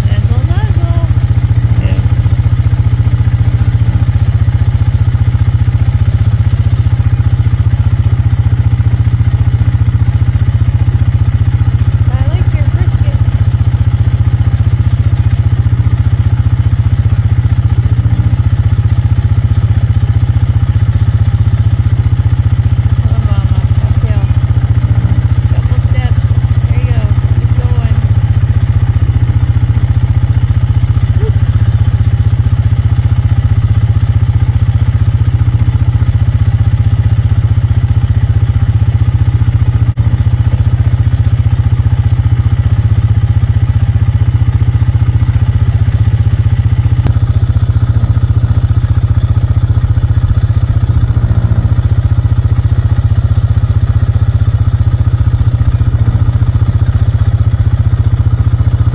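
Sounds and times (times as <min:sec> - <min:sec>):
low mechanical drone: 0:00.0 - 0:04.3, 0:12.0 - 0:14.4, 0:16.4 - 0:54.2.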